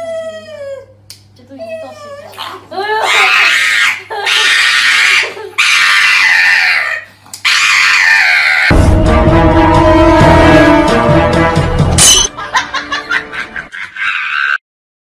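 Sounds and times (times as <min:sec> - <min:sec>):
dog wailing: 0:01.6 - 0:08.7
music: 0:08.7 - 0:13.7.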